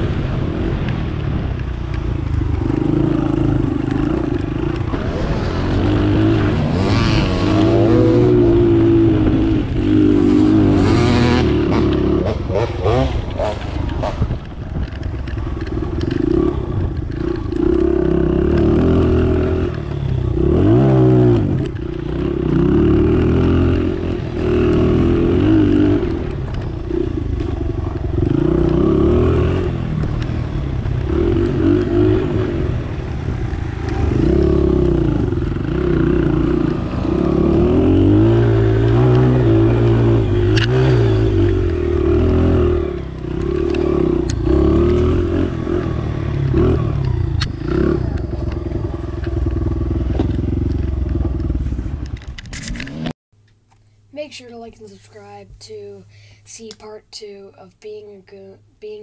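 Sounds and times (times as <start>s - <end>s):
dirt bike engine revving: 2.3s - 52.0s.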